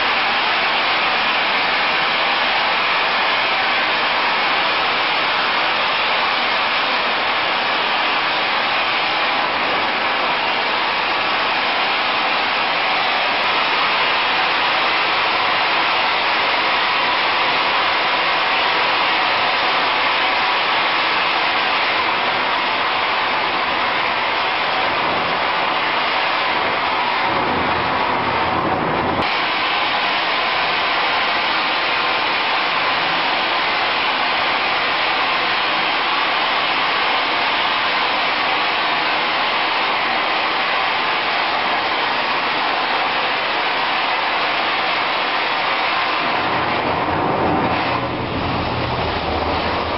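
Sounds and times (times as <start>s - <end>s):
industrial vacuum rushing air: 0.0s - 49.9s
deeper rush of air: 46.2s - 49.9s.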